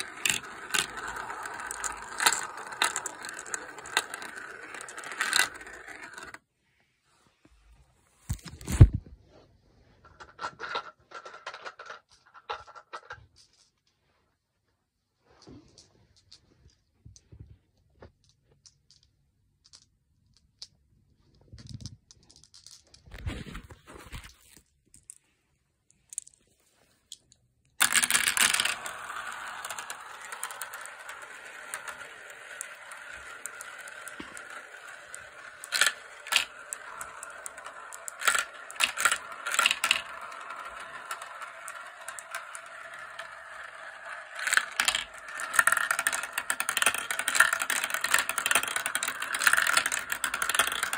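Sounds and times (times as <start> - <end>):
glass marbles rolling and rattling: 0.0 - 6.4, 27.8 - 50.9.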